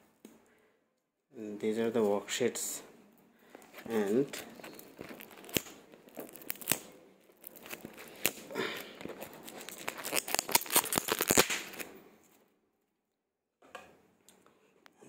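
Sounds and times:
plastic shrink wrap crinkling: 3.5 - 12.0.

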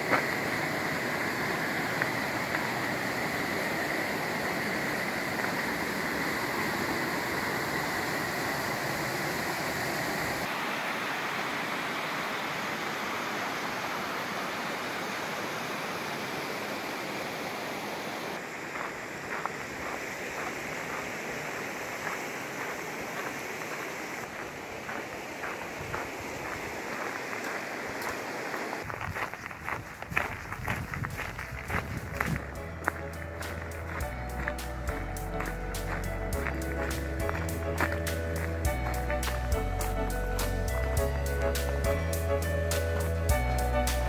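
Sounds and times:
footsteps on a dirt trail: 0.0 - 6.4, 18.4 - 44.0
creek running over rocks: 0.0 - 43.8.

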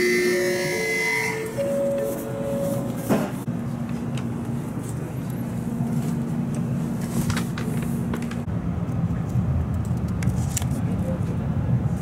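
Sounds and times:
steady hum: 0.0 - 9.6
train low rumble: 0.0 - 12.0.

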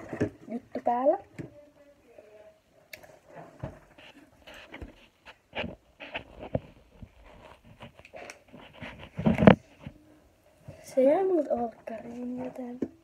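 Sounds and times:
rustles and soft knocks: 3.1 - 13.0
phone rubbing against clothing: 3.9 - 10.0.

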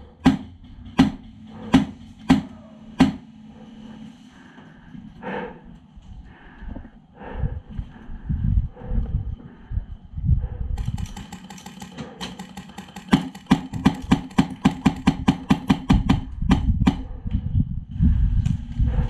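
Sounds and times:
handling bumps: 0.0 - 3.5
airsoft rifle shots: 0.2 - 3.4, 10.8 - 17.0.

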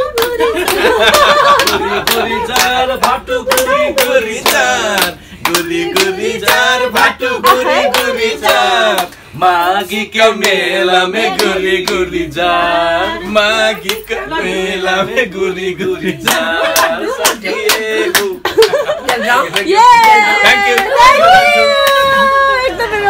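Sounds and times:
hands clapping along: 0.0 - 9.2, 10.4 - 10.6, 13.8 - 14.1, 16.2 - 22.2
people singing a folk song: 0.0 - 18.9.

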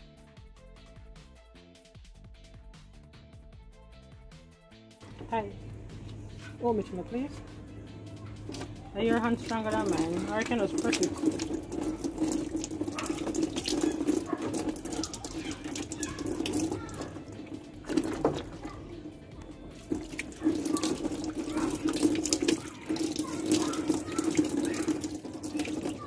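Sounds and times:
water pouring and splashing on hands: 8.2 - 26.0.

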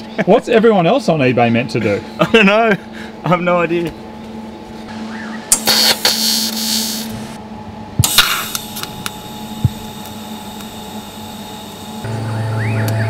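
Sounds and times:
low hum: 4.0 - 13.0
arc welding hiss: 5.5 - 7.4, 8.0 - 12.1.

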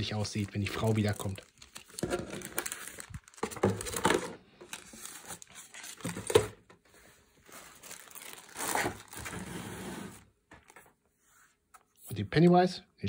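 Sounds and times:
plastic bags crinkling: 0.0 - 6.4, 7.4 - 9.4.

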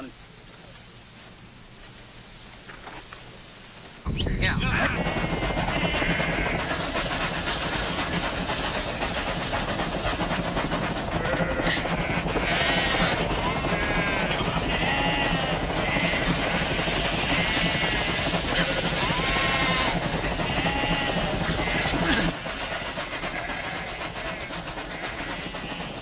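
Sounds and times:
moving train noise: 0.0 - 26.0
sheep bleating: 13.7 - 16.1, 18.6 - 21.9.

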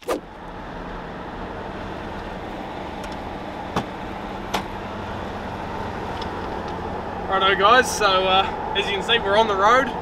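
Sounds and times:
engine and road noise: 0.0 - 10.0.

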